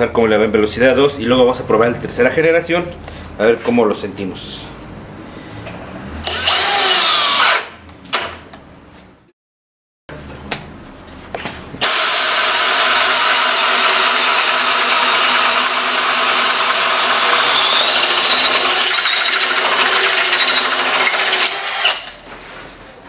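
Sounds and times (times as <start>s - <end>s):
cordless drill boring through wood: 6.2s - 7.7s, 11.8s - 22.2s.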